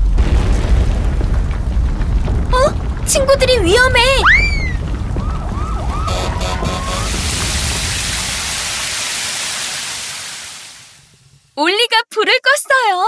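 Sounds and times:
cartoon volcano rumble: 0:00.0 - 0:11.2
short musical notes: 0:06.1 - 0:07.1
water spray hissing: 0:06.2 - 0:11.1.

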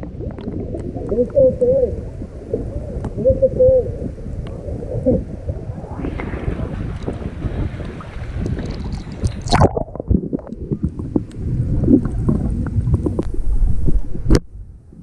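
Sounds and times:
seawater splashing: 0:00.0 - 0:14.3
underwater bubbling wash: 0:00.0 - 0:15.0.

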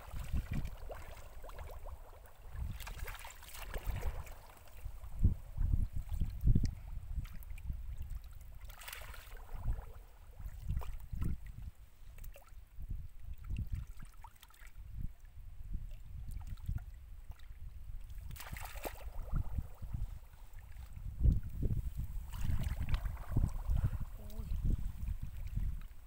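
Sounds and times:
hands splashing in muddy water: 0:00.0 - 0:04.9, 0:18.2 - 0:20.0, 0:22.2 - 0:24.6.

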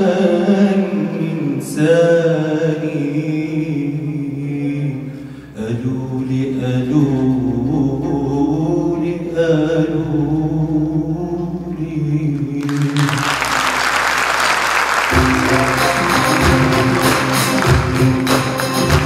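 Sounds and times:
man singing long vocal phrase: 0:00.0 - 0:13.8
band playing: 0:09.4 - 0:19.0
audience applause: 0:12.6 - 0:19.0.

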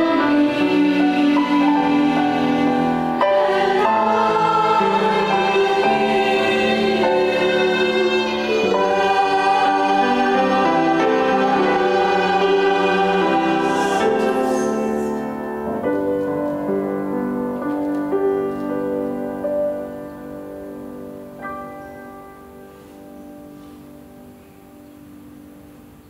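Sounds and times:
violin accompaniment: 0:00.0 - 0:16.8
church choir singing a hymn: 0:00.0 - 0:17.4.

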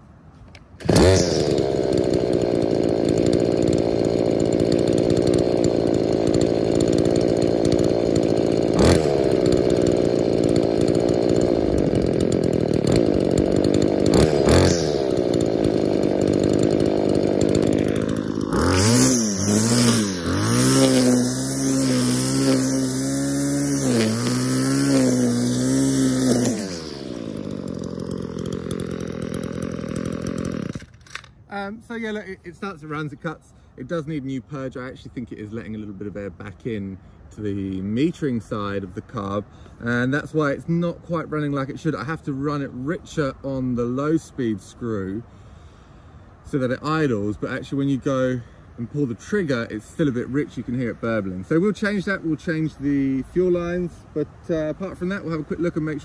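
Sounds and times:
string trimmer engine revving: 0:00.5 - 0:33.2, 0:54.2 - 0:56.0.

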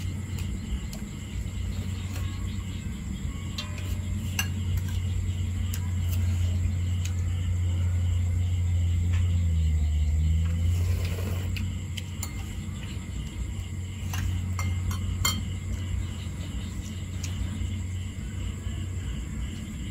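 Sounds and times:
steady low hum: 0:00.0 - 0:19.9
spoons clinking against ceramic bowls: 0:03.5 - 0:05.0, 0:14.1 - 0:15.6.

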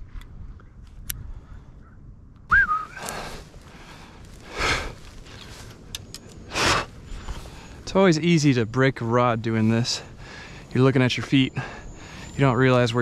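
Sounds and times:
high-pitched whistle-like note: 0:02.5 - 0:03.0
man breathing hard: 0:02.9 - 0:05.8, 0:06.4 - 0:07.8, 0:10.0 - 0:10.8, 0:11.5 - 0:12.4.

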